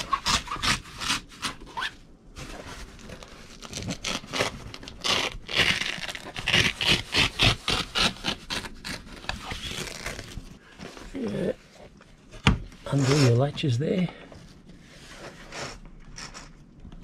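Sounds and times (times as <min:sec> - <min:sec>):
velcro ripping: 0:00.0 - 0:02.0, 0:03.2 - 0:10.4
canvas rustling: 0:00.2 - 0:13.5.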